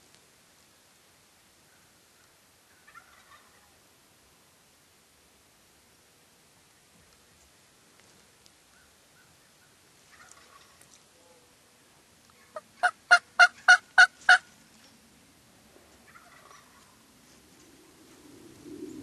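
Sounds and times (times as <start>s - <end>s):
wild turkey yelping: 1.7s - 3.7s, 8.7s - 11.4s, 12.4s - 14.4s, 16.1s - 17.0s.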